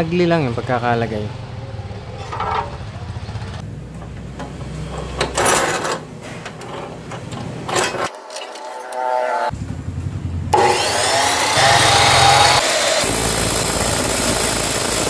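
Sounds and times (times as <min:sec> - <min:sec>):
metal scraping and clattering: 0:02.1 - 0:09.7.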